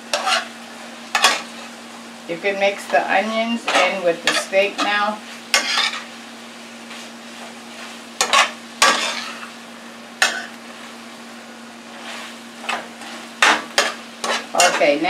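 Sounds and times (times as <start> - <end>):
low sizzle: 0.0 - 15.0
metal utensil scraping a pan: 0.1 - 0.5, 1.1 - 1.7, 3.6 - 6.1, 8.2 - 9.5, 12.0 - 15.0.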